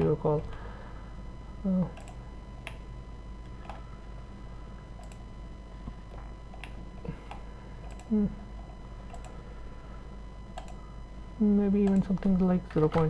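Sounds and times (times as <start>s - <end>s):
faint electrical hum: 0.0s - 13.0s
keyboard and mouse clicks: 9.1s - 9.4s, 10.6s - 10.8s.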